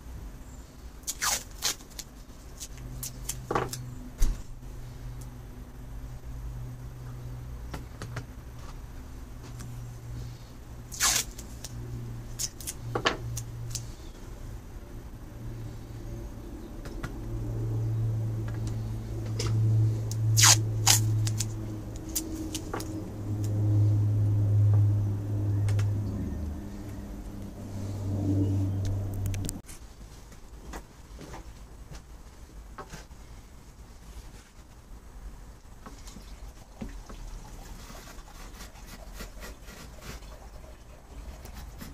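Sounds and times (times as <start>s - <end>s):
low steady hum: 0.0s - 41.9s
masking tape ripping: 1.0s - 3.5s, 10.9s - 13.9s, 20.1s - 23.6s.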